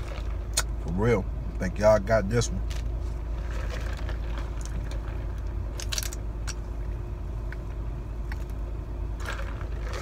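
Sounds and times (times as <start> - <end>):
car cabin hum: 0.0 - 10.0.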